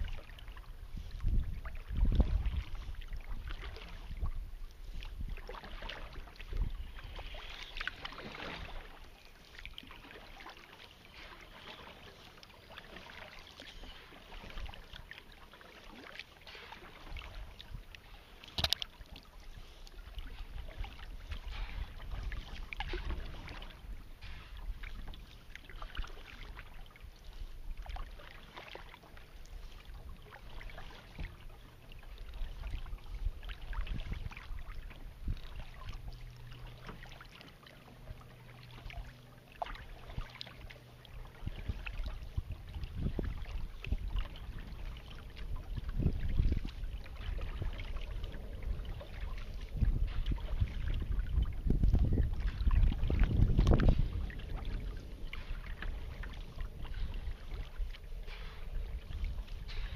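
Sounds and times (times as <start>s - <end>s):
paddle strokes dipping in water: 0.0s - 59.9s
low rumble: 44.2s - 59.9s.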